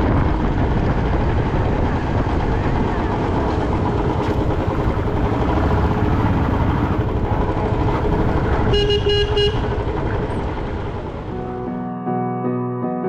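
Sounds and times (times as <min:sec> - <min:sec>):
motorcycle engine running: 0:00.0 - 0:11.7
vehicle horn beeps: 0:08.6 - 0:10.0.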